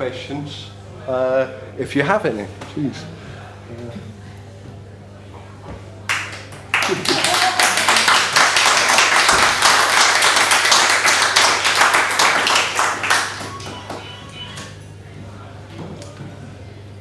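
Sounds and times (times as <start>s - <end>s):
audience applauding: 6.1s - 14.6s.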